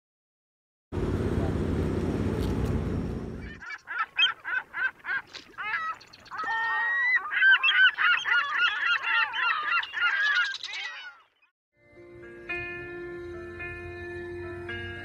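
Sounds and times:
geese honking: 3.4s - 11.2s.

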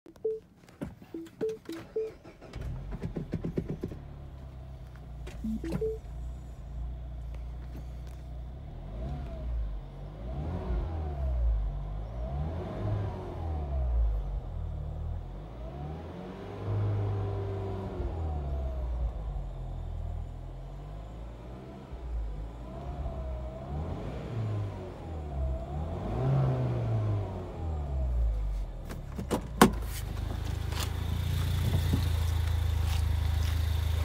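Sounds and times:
car engine idling and revving: 0.2s - 34.0s
car engine starting: 1.2s - 34.0s
dashboard chime tones: 5.5s - 6.0s.

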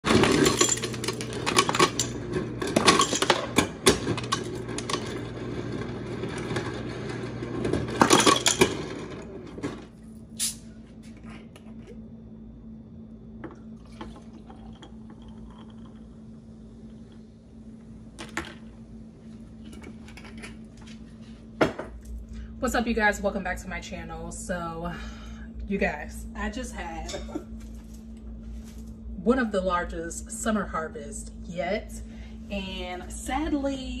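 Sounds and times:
ice dispenser motor hum: 0.0s - 10.0s, 13.2s - 18.7s
ice cubes clattering into glass jar: 0.1s - 2.2s, 8.0s - 8.8s.

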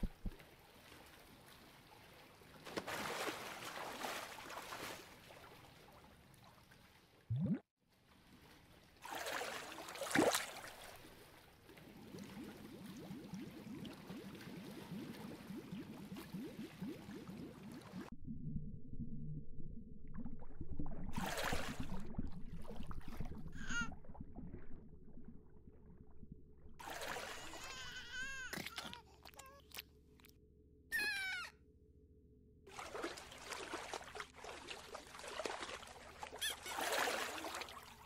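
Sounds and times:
water bubbling and gurgling: 7.3s - 7.7s, 9.0s - 28.8s.

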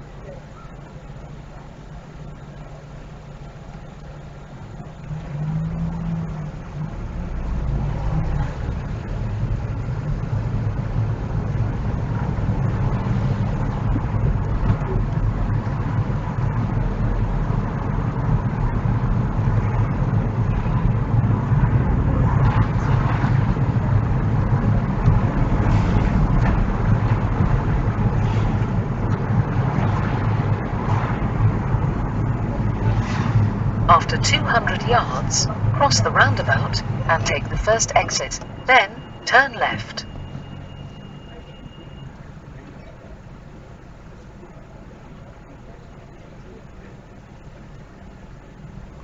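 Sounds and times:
car engine and tyre rumble: 0.0s - 49.0s.

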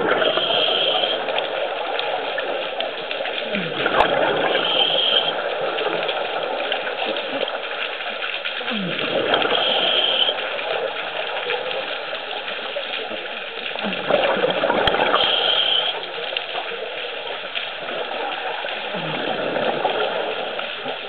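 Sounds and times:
exhaled bubbles gurgling: 0.0s - 21.0s
underwater noise: 0.0s - 21.0s
regulator inhalation hiss: 0.2s - 1.2s, 4.4s - 5.3s, 9.6s - 10.4s, 15.1s - 16.0s.

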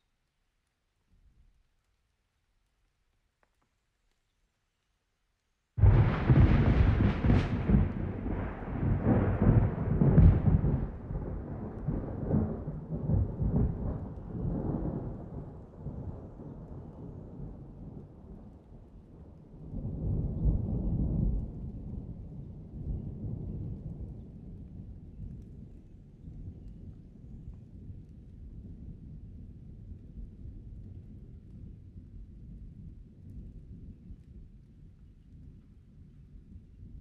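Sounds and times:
thunder clap and rumbling: 5.8s - 18.6s, 19.6s - 34.5s.

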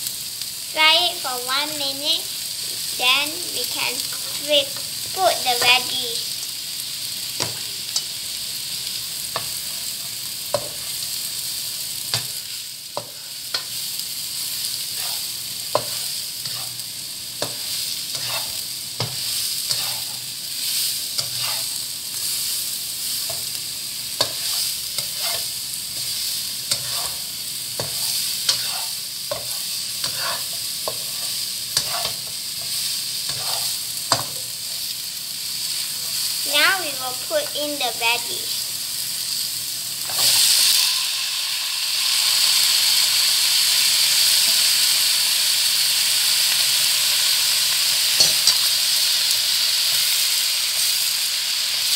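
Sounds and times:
food sizzling in hot oil: 0.0s - 51.9s.

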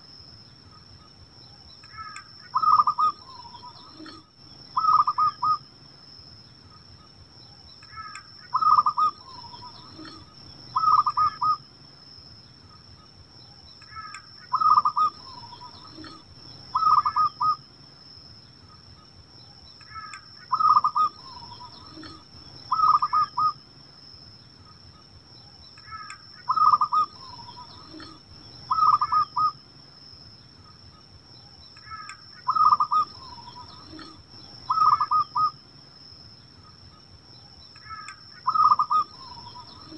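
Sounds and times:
dove cooing: 1.9s - 5.6s, 7.9s - 11.6s, 13.9s - 17.6s, 19.9s - 23.6s, 25.9s - 29.6s, 31.8s - 35.5s, 37.9s - 39.9s.

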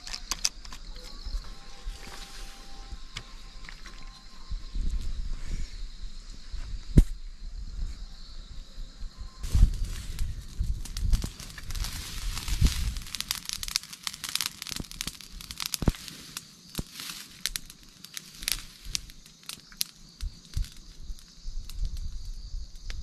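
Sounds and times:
fire crackling and popping: 9.4s - 23.0s.

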